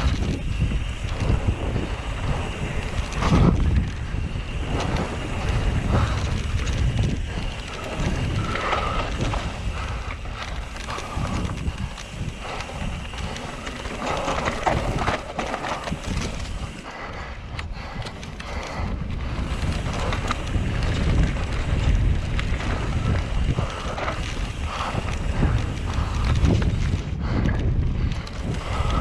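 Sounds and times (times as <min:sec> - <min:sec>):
bike knocks and rattles: 0:00.0 - 0:16.8, 0:17.9 - 0:29.0
bike tyres rolling on dirt: 0:00.0 - 0:29.0
wind buffeting microphone: 0:00.0 - 0:29.0.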